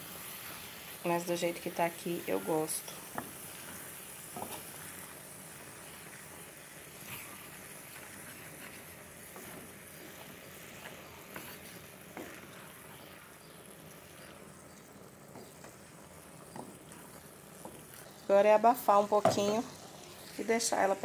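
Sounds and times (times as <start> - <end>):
faint frying sizzle: 0.0 - 21.0
wooden spoon scraping and tapping: 2.8 - 4.8, 7.0 - 13.2, 15.3 - 18.2.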